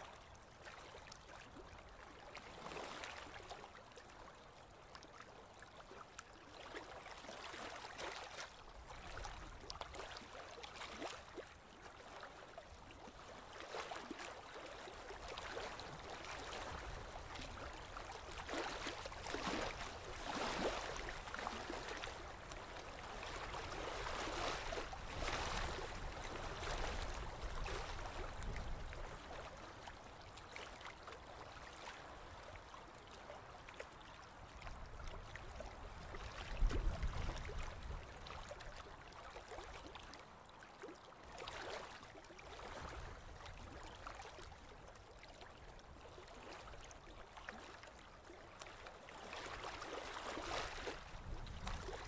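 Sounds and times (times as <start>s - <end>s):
water splashing along boat hull: 15.2s - 31.8s, 48.6s - 52.0s.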